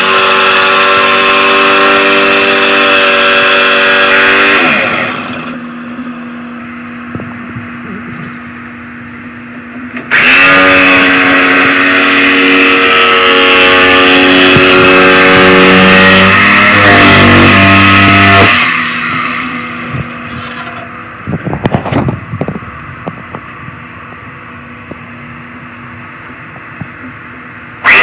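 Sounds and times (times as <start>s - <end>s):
jigsaw cutting wood: 0.0s - 5.6s, 10.1s - 19.6s.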